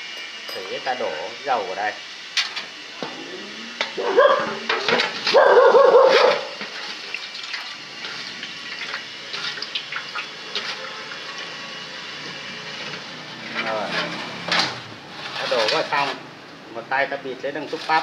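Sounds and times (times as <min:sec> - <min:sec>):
metal clinks: 0:00.2 - 0:00.9
oil sloshing in a metal basin: 0:06.5 - 0:11.4.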